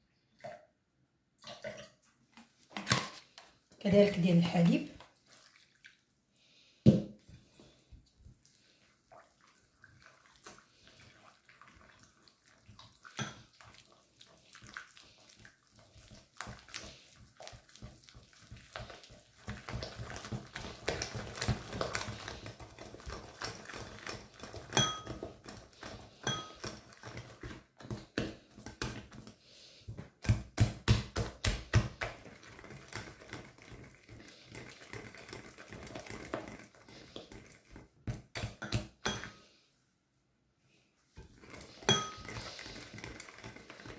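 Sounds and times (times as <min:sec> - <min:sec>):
whisk beating batter: 0:09.1 - 0:39.3, 0:41.2 - 0:43.9
whisk clinking against glass: 0:24.6 - 0:25.4, 0:26.2 - 0:26.8, 0:38.6 - 0:39.4, 0:41.8 - 0:42.7.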